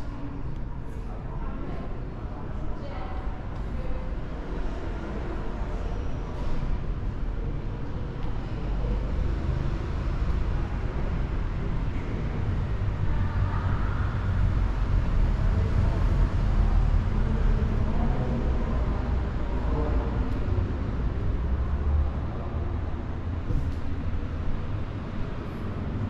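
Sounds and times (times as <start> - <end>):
low rumbling background noise: 0.0 - 26.0.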